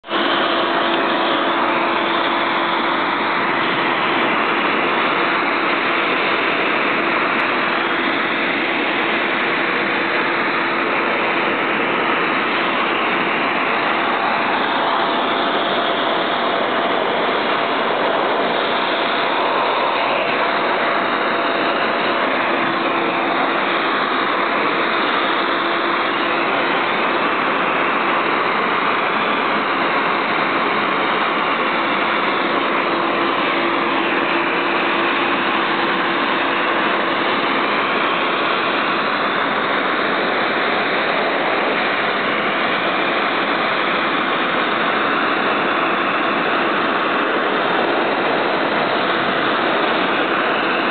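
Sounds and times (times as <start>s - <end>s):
blower rush of air: 0.0s - 50.9s
faint motor whine: 0.0s - 50.9s.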